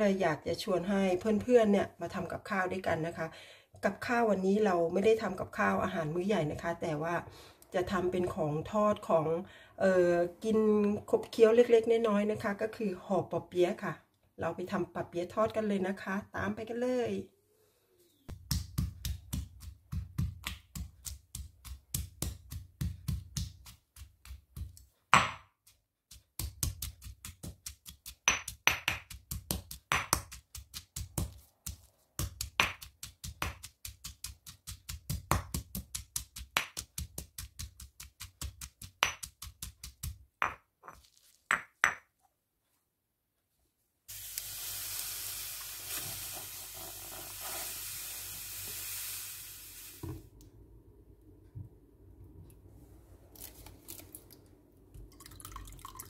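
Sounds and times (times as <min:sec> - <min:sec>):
mortar and pestle pounding: 0:18.3 - 0:40.6
sugar pouring into metal pot: 0:44.1 - 0:50.0.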